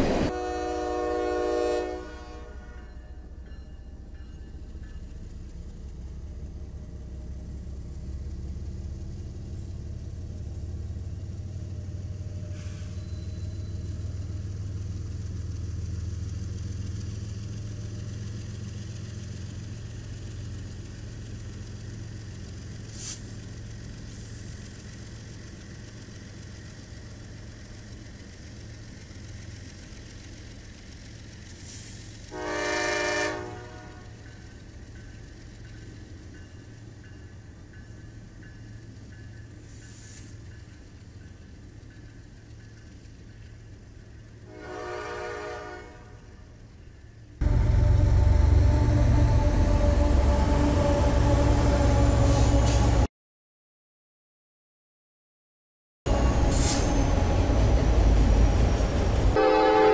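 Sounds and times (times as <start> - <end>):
train horn blast: 0.0 - 3.1, 32.3 - 34.3, 44.4 - 46.4, 47.4 - 53.1, 59.3 - 59.9
locomotive engine rumble: 0.0 - 53.1, 56.1 - 59.9.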